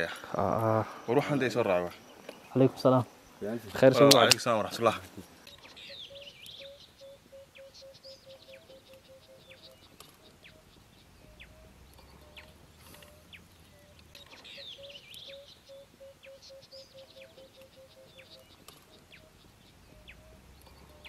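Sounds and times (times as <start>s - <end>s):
low piping bird calls: 0.0s - 21.0s
high bird chirps: 5.4s - 21.0s.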